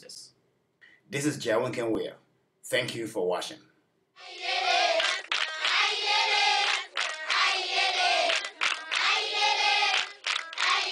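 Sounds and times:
group of voices singing: 0:04.2 - 0:10.9.

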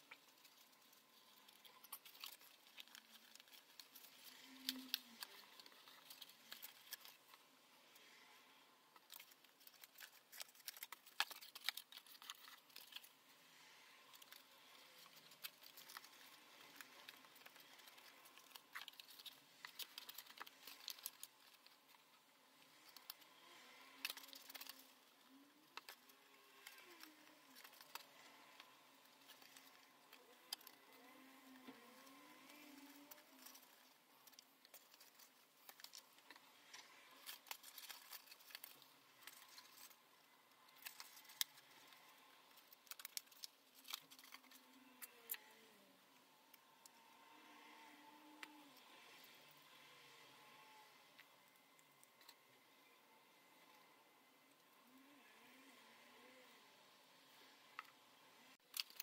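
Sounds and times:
paper rustling and crinkling: 0:00.0 - 0:07.4, 0:09.0 - 0:13.2, 0:14.1 - 0:22.2, 0:22.8 - 0:45.4.

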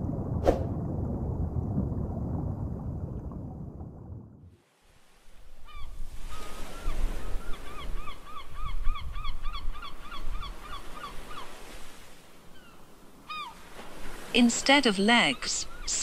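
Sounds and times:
low rumble: 0:00.0 - 0:04.5.

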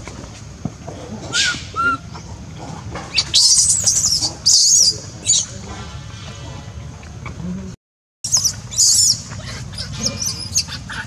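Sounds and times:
baby monkey screeching: 0:01.3 - 0:02.0, 0:03.1 - 0:05.5, 0:08.3 - 0:11.0.

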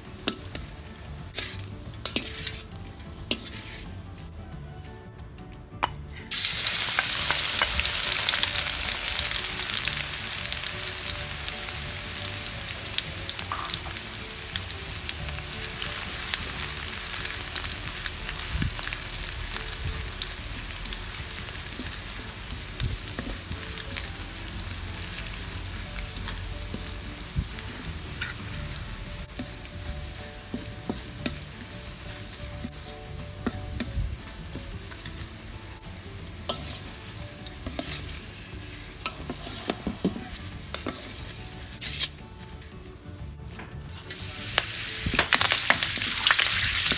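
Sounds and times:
garlic sizzling in hot oil: 0:00.0 - 0:04.2, 0:06.3 - 0:46.9
spatula scraping wok: 0:00.0 - 0:04.2, 0:20.2 - 0:46.9.

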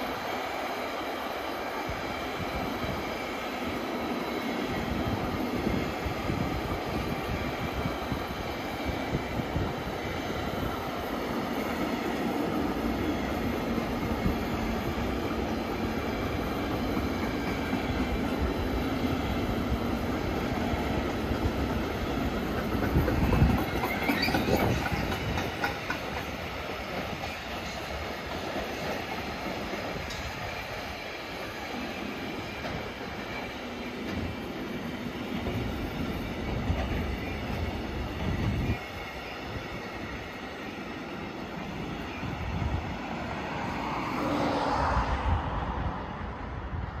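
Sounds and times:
train wheels clattering: 0:21.4 - 0:38.9
wheel squeal: 0:23.0 - 0:25.8.

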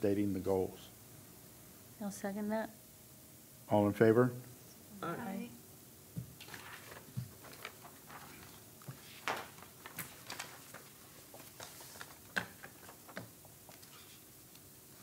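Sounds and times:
papers and small objects handled: 0:06.4 - 0:14.7.

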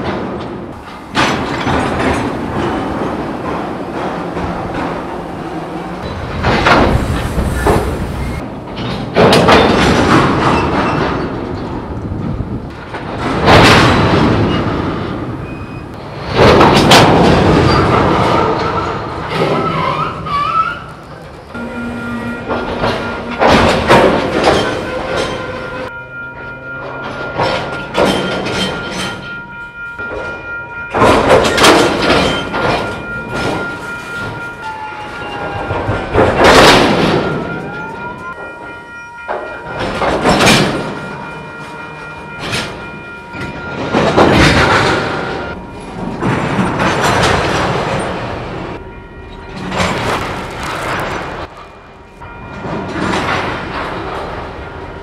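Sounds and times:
train couplers banging: 0:00.0 - 0:55.0
wheels rumbling over rails: 0:00.0 - 0:55.0
level crossing bell ringing: 0:25.8 - 0:31.7, 0:37.1 - 0:44.2.

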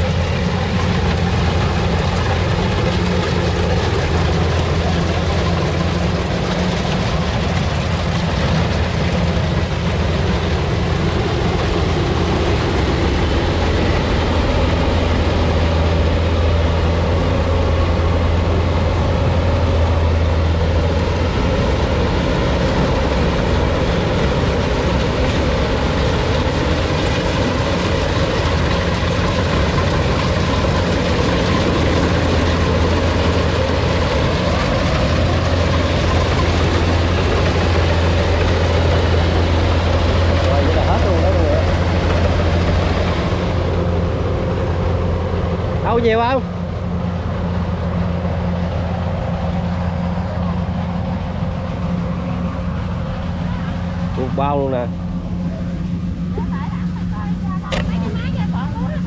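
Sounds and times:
combine harvester engine drone: 0:00.0 - 0:59.0.

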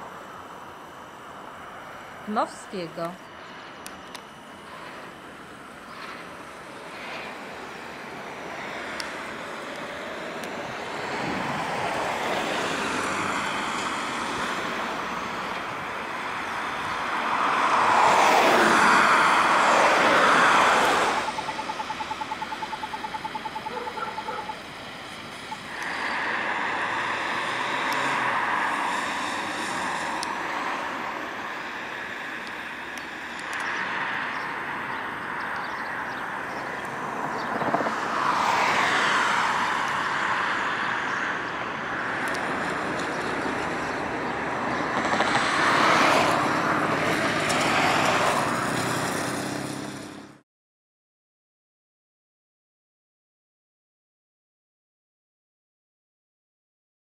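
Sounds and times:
cars and vans passing: 0:00.0 - 0:50.4
rapid pulsing tone: 0:21.0 - 0:24.7.

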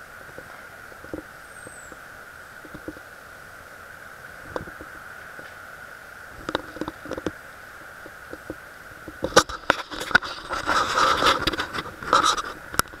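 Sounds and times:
camera knocking and scraping: 0:08.3 - 0:13.0.

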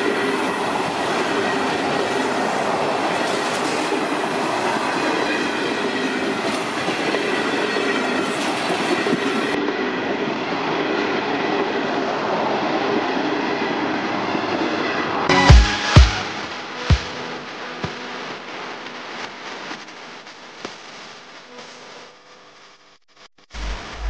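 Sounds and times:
train wheels rolling on rails: 0:00.0 - 0:15.2.

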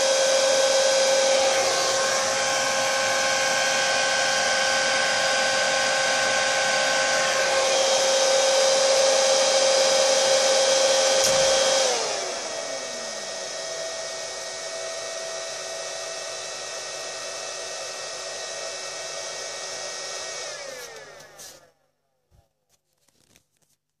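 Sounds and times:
cooling fans whining: 0:01.2 - 0:07.8.

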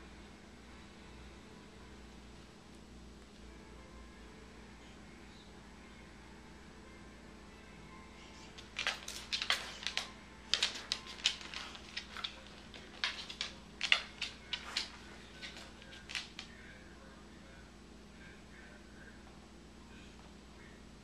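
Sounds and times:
dog toenails clicking on wood floor: 0:08.4 - 0:16.5.

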